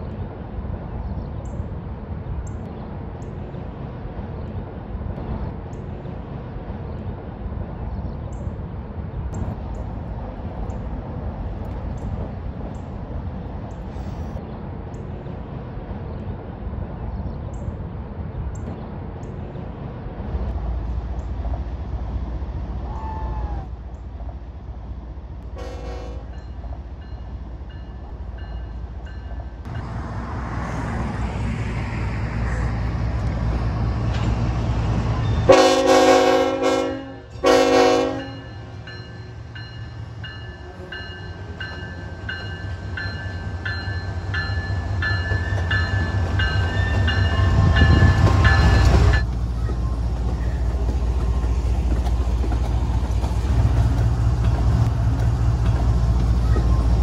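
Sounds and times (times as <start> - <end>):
diesel locomotive engine rumbling: 0.0 - 57.0
train air horn: 25.6 - 26.4, 35.5 - 38.4.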